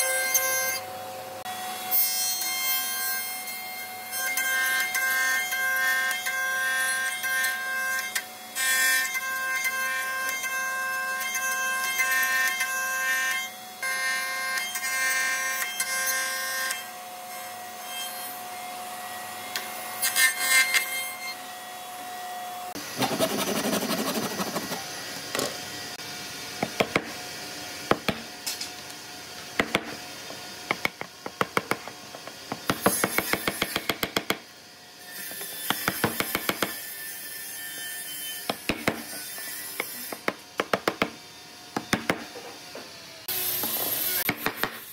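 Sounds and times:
woodworking machine whining: 22.6 - 26.0.

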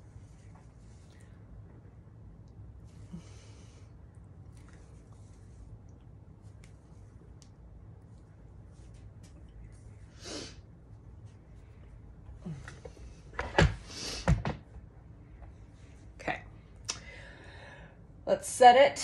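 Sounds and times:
soft breath: 2.8 - 5.8, 16.9 - 18.2.

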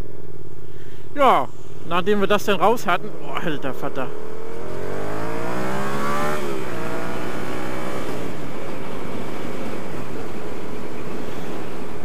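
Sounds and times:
road and wind noise: 0.0 - 12.0
motorcycle engine accelerating: 2.9 - 12.0.

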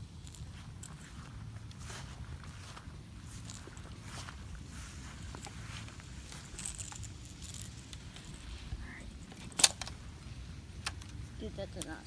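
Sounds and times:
fishing reel clicks and rattles: 5.2 - 8.3.

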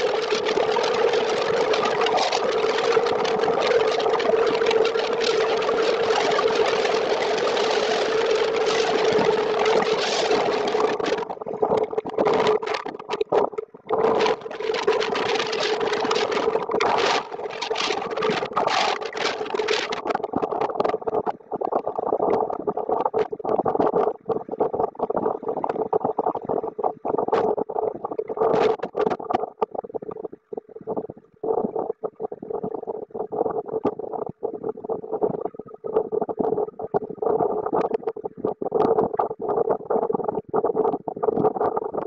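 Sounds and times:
rapid crackling of wind and rain: 0.0 - 26.4, 27.0 - 29.8.

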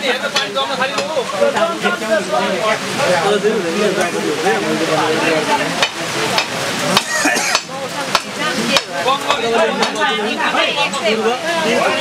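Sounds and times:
raindrops tapping on plastic tarp: 0.0 - 1.8, 5.6 - 10.0
faint voices talking: 0.0 - 12.0
steady rain hissing: 0.0 - 12.0.

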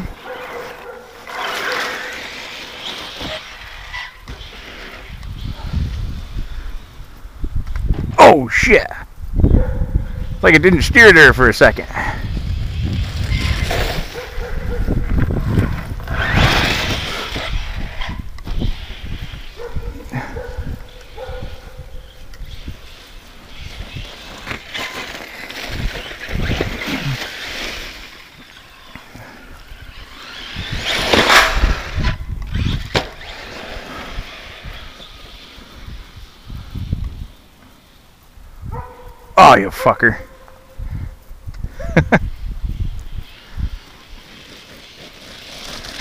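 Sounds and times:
rc car motor and tyres: 0.0 - 8.1, 9.6 - 46.0
wind rumble on microphone: 4.9 - 8.2, 9.0 - 24.6, 25.6 - 28.1, 29.6 - 37.4, 38.3 - 39.4, 40.7 - 44.2.

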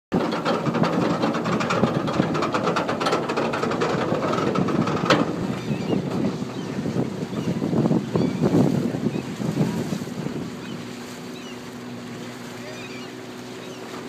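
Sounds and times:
wind on microphone: 0.1 - 12.5
outboard motor running: 0.1 - 14.0.

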